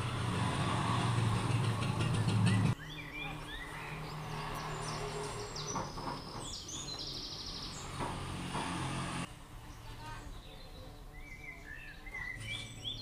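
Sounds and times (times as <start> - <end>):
small birds chirping: 1.5 - 8.3, 9.6 - 13.0.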